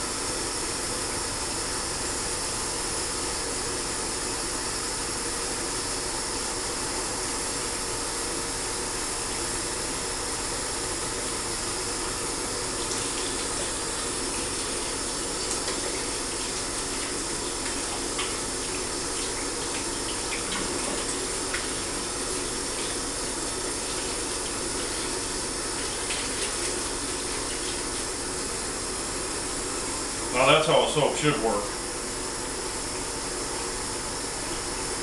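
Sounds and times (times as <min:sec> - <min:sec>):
sink faucet running: 0:10.8 - 0:31.4.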